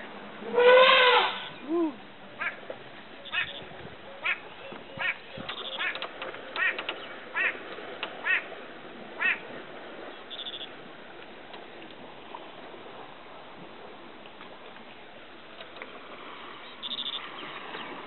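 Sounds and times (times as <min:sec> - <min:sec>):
bird calling: 0:00.5 - 0:07.6, 0:10.1 - 0:10.8, 0:16.6 - 0:18.0.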